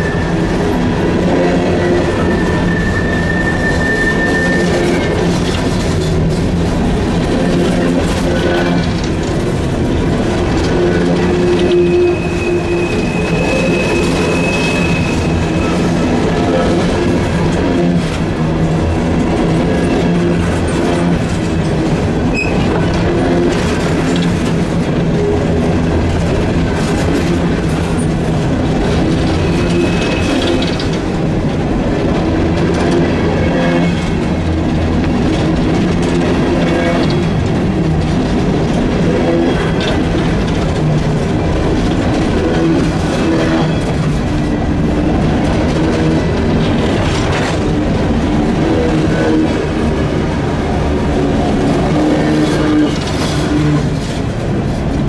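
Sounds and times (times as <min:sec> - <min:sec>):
train wheels rumbling on rails: 0:00.0 - 0:55.0
high wheel squeal: 0:01.6 - 0:05.9, 0:10.7 - 0:17.3, 0:22.3 - 0:22.8, 0:29.1 - 0:30.9
wheels clicking over rail joints: 0:04.9 - 0:55.0.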